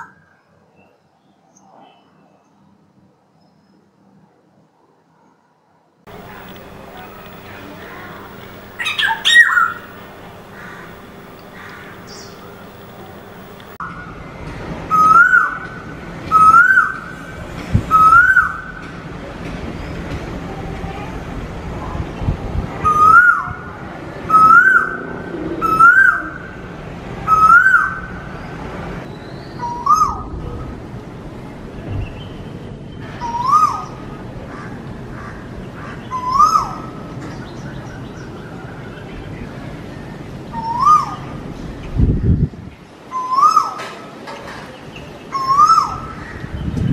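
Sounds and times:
koel whistled call: 6.6 - 13.5.

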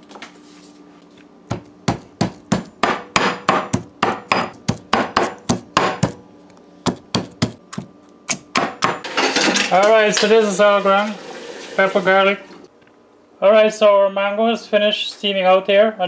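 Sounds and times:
stone pestle pounding in mortar: 1.5 - 6.2, 6.8 - 9.1.

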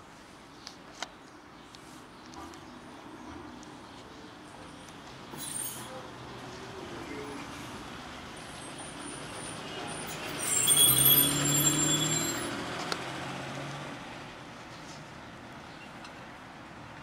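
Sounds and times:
vehicle engine hum passing: 6.0 - 15.0.

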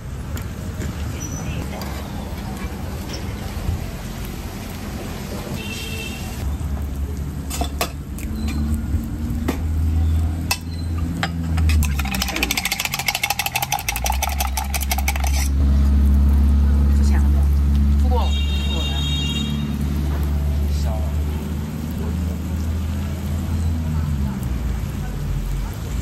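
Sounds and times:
low traffic rumble: 0.0 - 26.0
chopsticks clinking on metal: 10.5 - 15.6.

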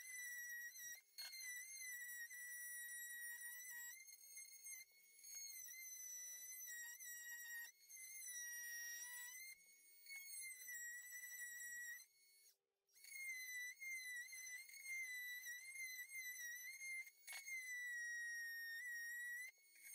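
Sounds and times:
multi-tool cutting whine: 0.0 - 19.9.

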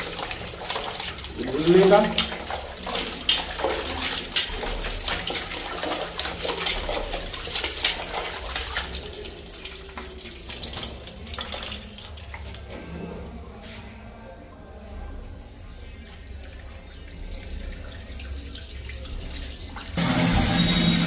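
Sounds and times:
water sloshing in steel bowl: 0.0 - 14.1.

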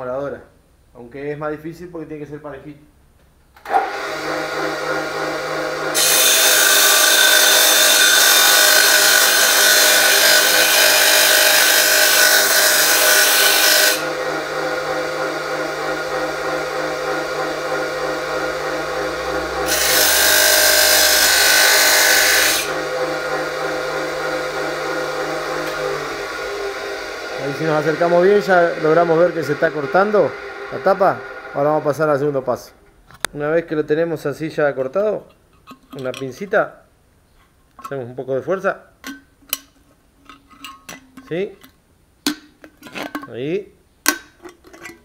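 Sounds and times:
cut-off saw motor running: 3.7 - 32.7
metal can grinding against disc: 5.9 - 14.2.

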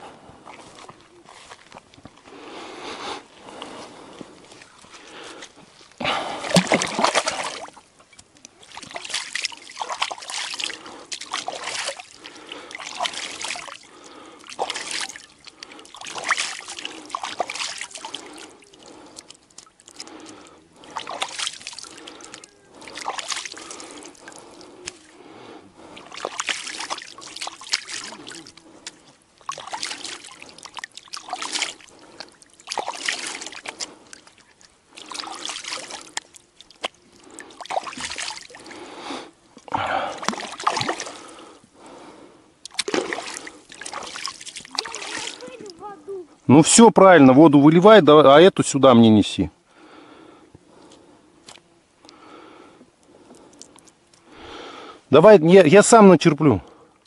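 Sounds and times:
water splashing from bucket: 6.0 - 25.1, 25.8 - 41.5, 42.6 - 45.9.

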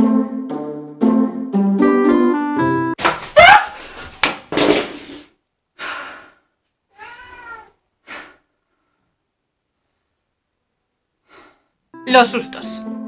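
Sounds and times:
woman screaming: 3.4 - 3.8.

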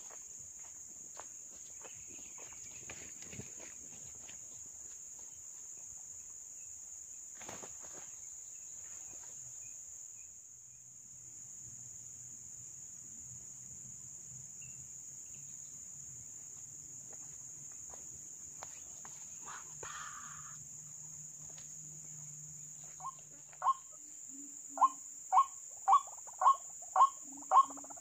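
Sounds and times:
footsteps in dry vegetation: 0.0 - 5.8
insects droning: 0.0 - 28.0.

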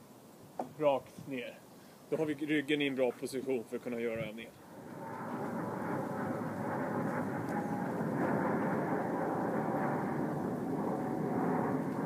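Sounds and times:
steady rushing noise: 3.8 - 12.0.

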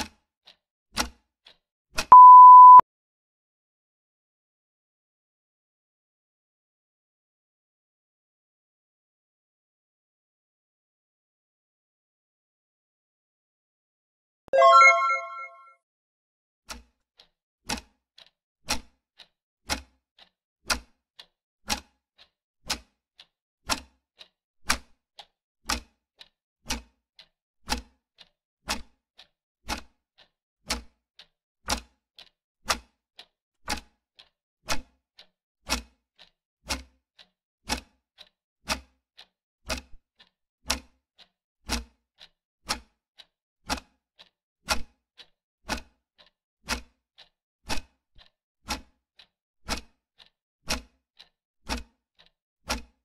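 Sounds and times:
clock ticking: 14.6 - 15.5.

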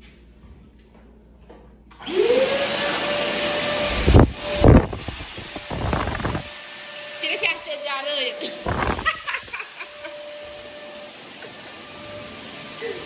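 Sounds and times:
vacuum cleaner motor whine: 2.0 - 13.0
air thumps on microphone: 8.7 - 9.2.

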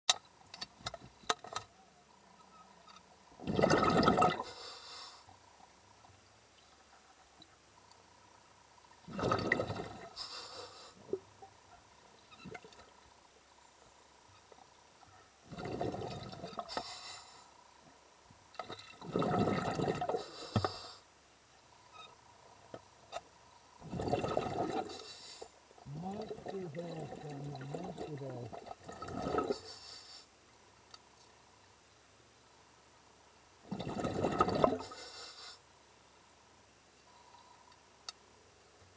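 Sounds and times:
underwater bubbling water: 3.2 - 4.8, 6.6 - 13.2, 15.1 - 17.0, 18.5 - 21.0, 23.7 - 29.9, 33.6 - 35.2.

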